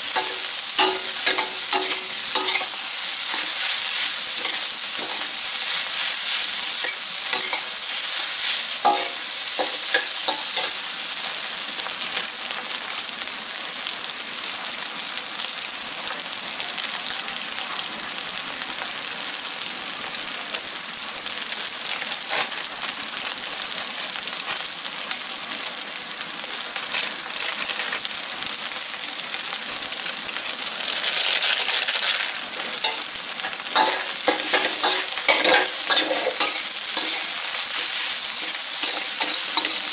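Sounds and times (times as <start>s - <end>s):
rice sizzling in a wok: 0.0s - 39.9s
metal spatula scraping a wok: 0.2s - 10.8s, 32.9s - 39.9s.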